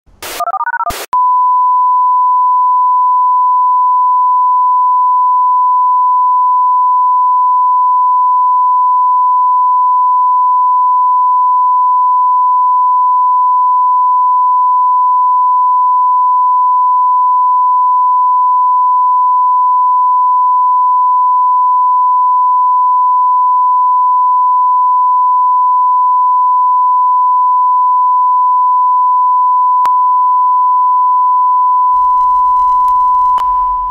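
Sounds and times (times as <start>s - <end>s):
phone dialing clicks and tones: 0.4s - 0.9s, 32.0s - 33.9s
long steady beep: 0.4s - 33.9s.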